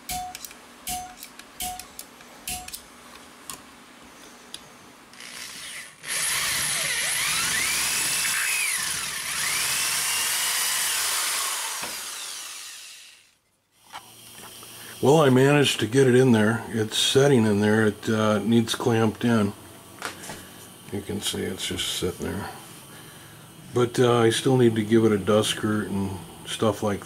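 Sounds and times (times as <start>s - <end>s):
drill press boring through metal: 5.2s - 13.3s.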